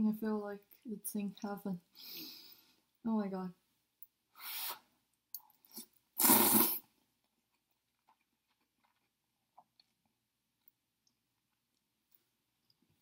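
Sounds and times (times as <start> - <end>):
person slurping noodles: 5.7 - 6.9.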